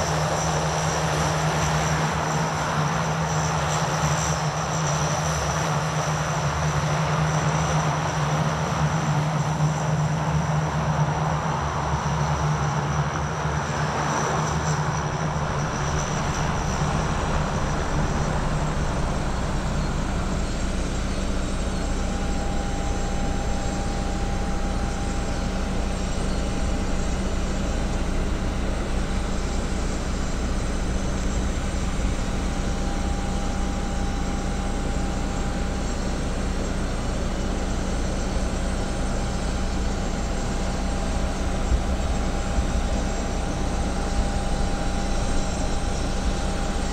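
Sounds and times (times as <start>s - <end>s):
turboprop engines droning: 0.0s - 46.9s
thin whine: 12.7s - 46.9s.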